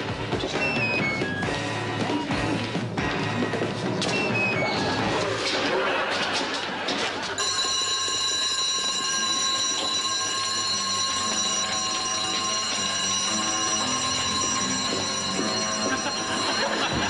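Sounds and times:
electric alarm bell ringing: 7.4 - 17.0.

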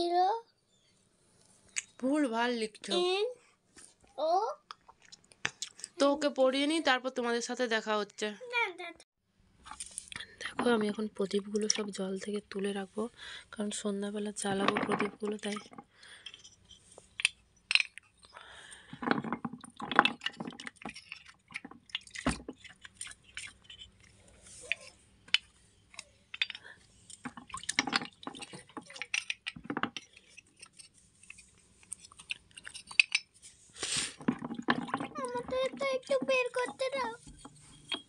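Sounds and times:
water splashing and dripping: 19.5 - 23.8, 27.2 - 29.6.

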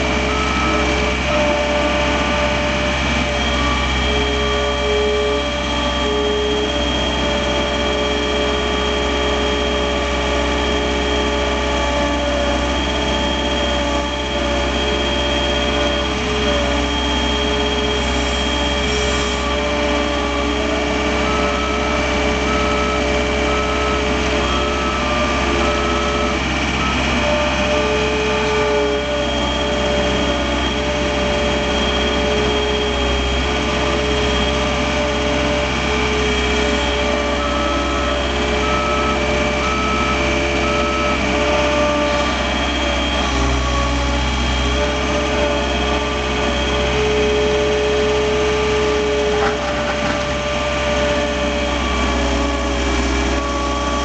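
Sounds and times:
diesel engine droning with whine: 0.0 - 54.0
backup alarm beeping: 0.1 - 54.0.

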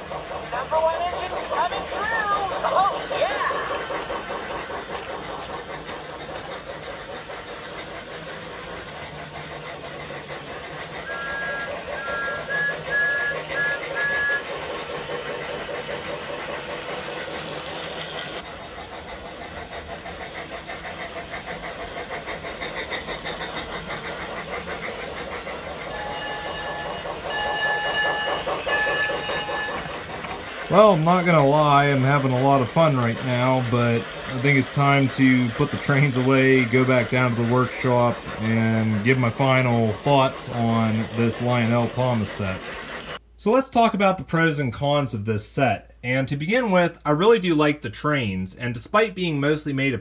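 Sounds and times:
toy trains whirring and clicking: 0.0 - 43.2
toy train electronic whistle: 11.0 - 14.6, 25.9 - 30.0.

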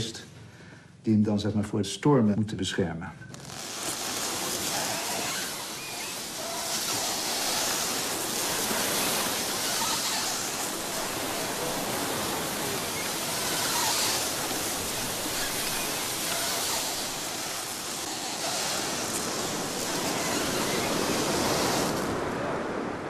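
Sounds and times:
sea wind: 3.3 - 23.0
surf breaking on beach: 3.4 - 23.0.

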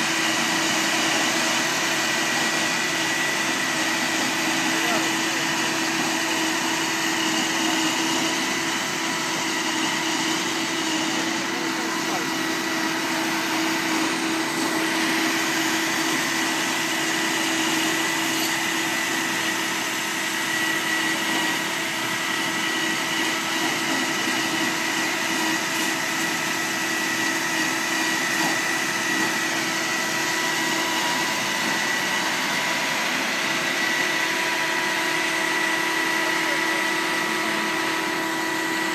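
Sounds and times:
shredder machine drone and whine: 0.0 - 38.9.

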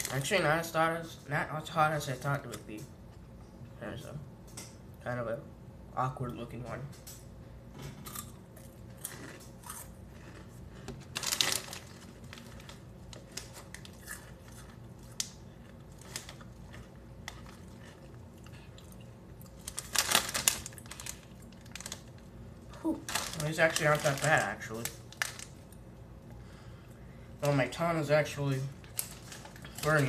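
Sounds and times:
crunchy snack chewing: 8.1 - 22.2.

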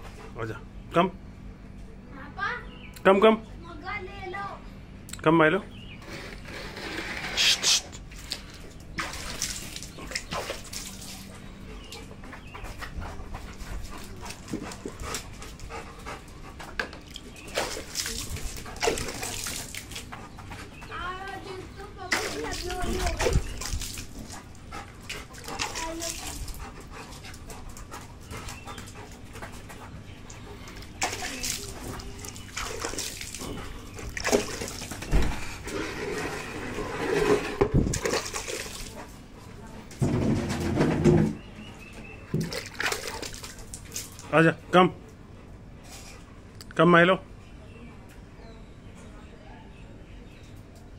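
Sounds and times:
dog splashing on wet concrete: 6.6 - 41.4, 42.2 - 44.4.

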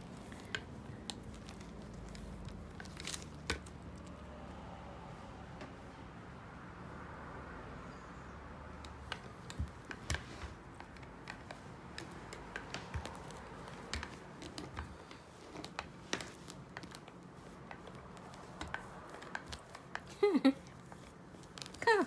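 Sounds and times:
lint roller crackling on fur: 0.0 - 4.2, 8.8 - 22.0.

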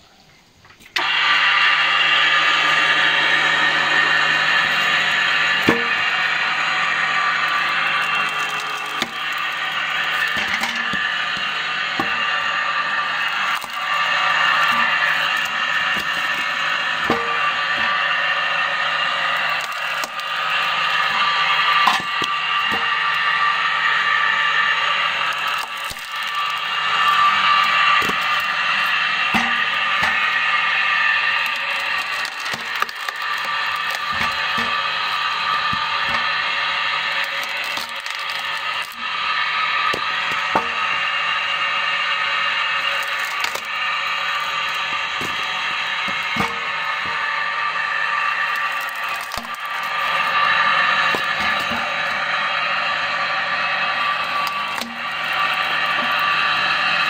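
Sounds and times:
wood splitter mechanical whine: 0.3 - 57.0
wood cracking and knocking on steel: 4.5 - 6.2, 7.3 - 18.0, 19.0 - 23.2, 25.2 - 39.1, 42.8 - 47.2, 48.4 - 52.2, 54.2 - 56.3.

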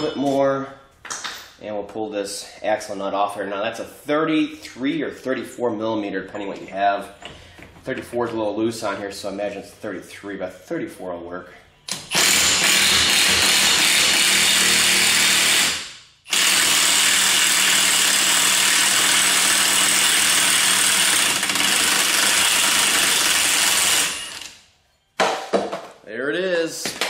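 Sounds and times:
impact wrench hammering: 25.2 - 25.9.

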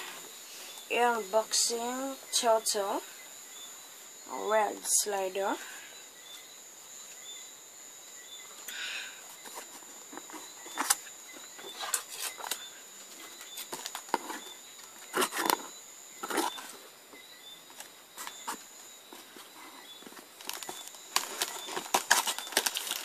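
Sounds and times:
packing tape and cardboard crackling: 9.5 - 16.8, 17.7 - 23.0.

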